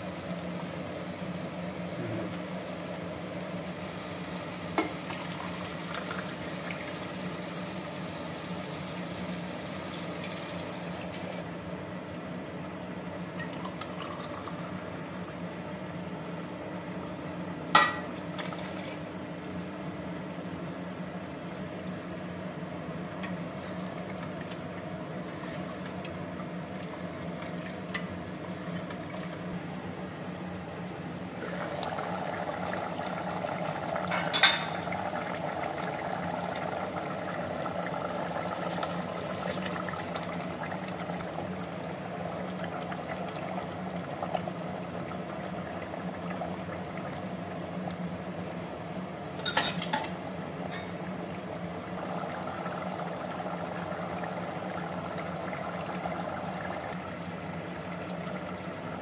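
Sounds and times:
gravy boiling and bubbling in a pot: 0.0 - 59.0.

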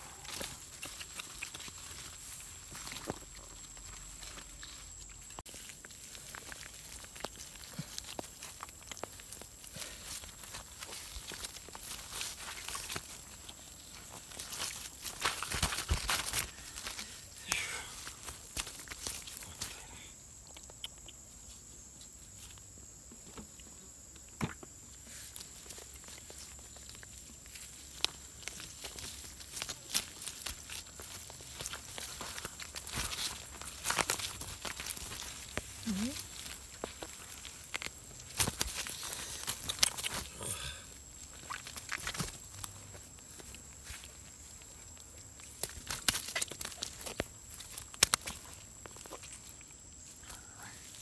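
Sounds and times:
hands sorting fish from net: 5.5 - 19.8, 25.3 - 40.3, 41.0 - 49.6
mesh fish trap rustling: 27.2 - 40.3.

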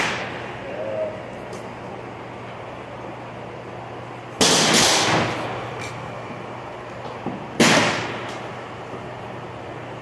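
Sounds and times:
gunshots echoing: 4.4 - 5.4, 7.6 - 8.3.

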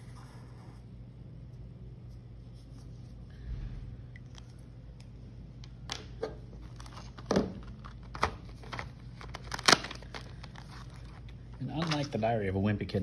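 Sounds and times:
plastic pouch crinkling: 6.6 - 12.2.

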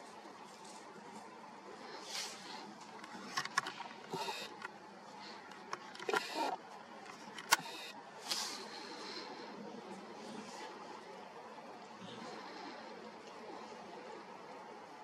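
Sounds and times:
camera clicks: 7.4 - 7.9.

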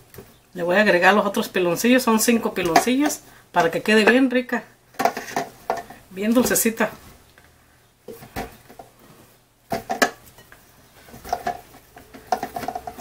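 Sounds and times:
pumpkin chunks knocking metal pot: 9.7 - 10.2, 11.2 - 13.0.

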